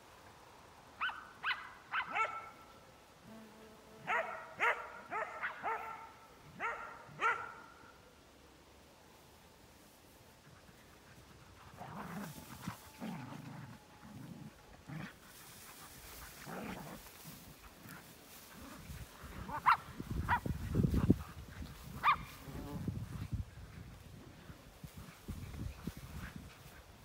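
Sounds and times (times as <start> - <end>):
dogs barking: 4.1 - 7.6, 22.0 - 22.3
soft low dog noises: 9.8 - 27.0.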